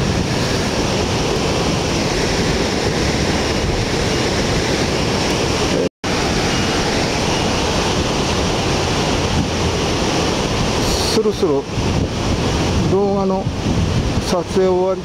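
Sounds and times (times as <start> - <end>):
heavy surf breaking: 0.0 - 15.0
wind on microphone: 0.0 - 15.0.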